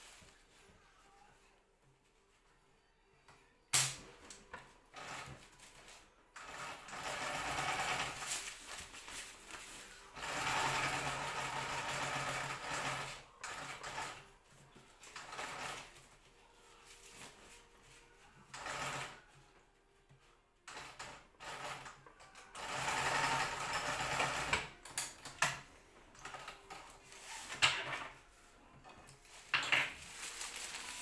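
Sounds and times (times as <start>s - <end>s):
sewing machine stitching: 4.9s - 5.4s, 6.4s - 8.4s, 10.1s - 14.2s, 15.1s - 15.9s, 18.5s - 19.2s, 20.7s - 24.8s.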